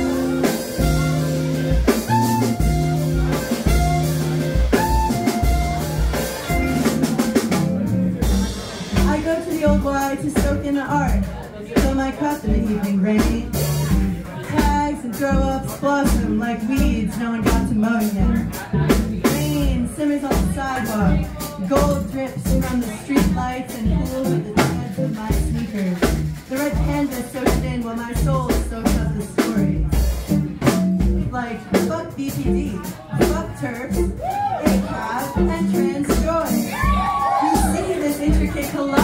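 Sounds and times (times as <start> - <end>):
gliding lead melody: 0.0 - 8.4
drum kit steady beat: 0.0 - 39.0
upright bass: 0.0 - 39.0.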